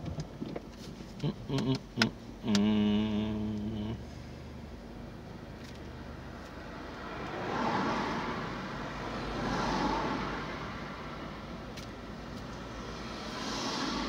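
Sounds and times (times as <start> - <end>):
low steady hum: 0.0 - 7.3
cars passing close by: 4.0 - 14.0.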